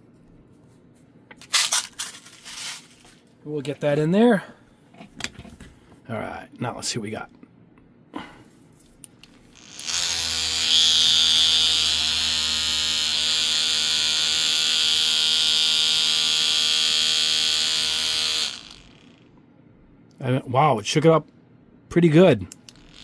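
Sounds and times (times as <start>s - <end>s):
paint shaker buzzing: 9.4s - 19.3s, 22.7s - 23.0s.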